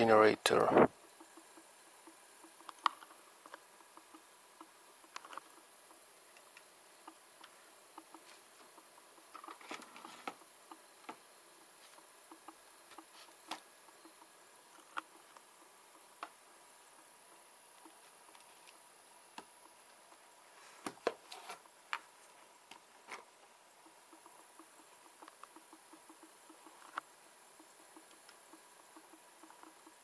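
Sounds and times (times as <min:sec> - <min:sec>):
sharp clicks and knocks: 0:00.6 - 0:11.3
small motor whining with ticks: 0:00.6 - 0:20.4, 0:21.6 - 0:30.0.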